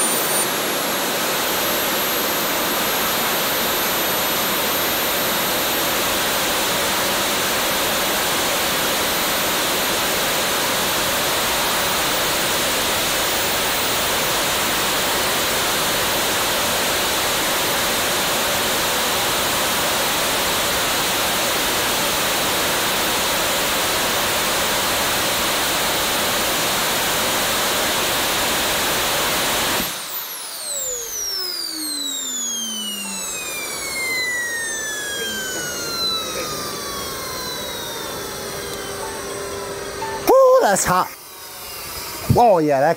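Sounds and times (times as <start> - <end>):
turbine spinning down whistles: 0.0 - 42.9
turbojet engine roar: 0.0 - 42.9.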